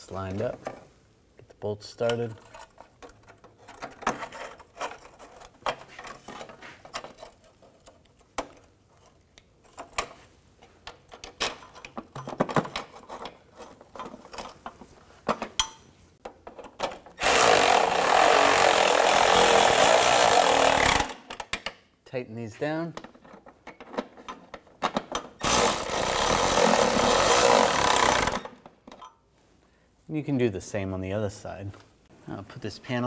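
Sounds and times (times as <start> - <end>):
cordless electric ratchet running: 17.2 - 21.2, 25.4 - 28.4.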